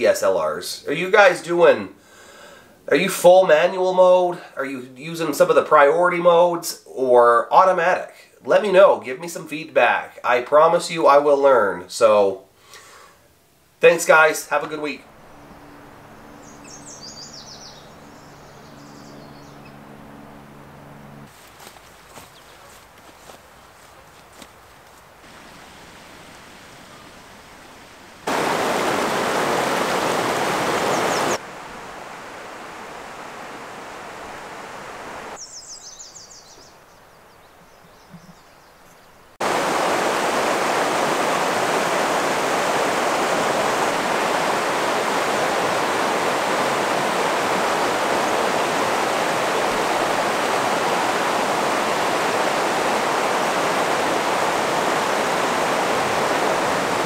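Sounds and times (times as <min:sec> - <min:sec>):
river rushing over rocks: 0:25.2 - 0:27.2, 0:28.2 - 0:35.4, 0:39.4 - 0:57.0.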